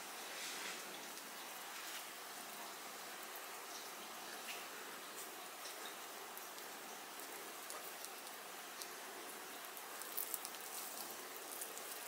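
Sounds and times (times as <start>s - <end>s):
faint steady hiss: 0.0s - 12.0s
crisp fritter tearing and crackling: 7.6s - 8.9s, 9.6s - 12.0s.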